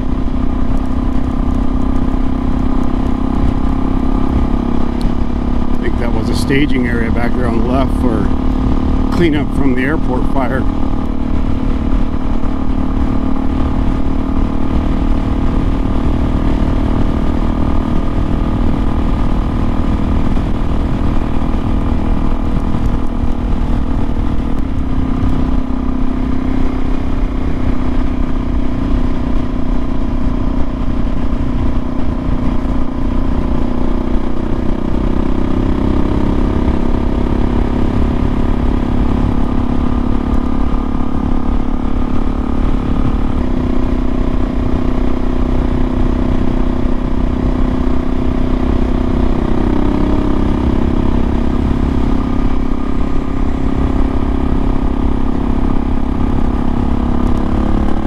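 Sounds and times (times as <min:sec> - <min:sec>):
motorcycle engine cruising: 0:00.0 - 0:58.0
wind and road noise: 0:00.0 - 0:58.0.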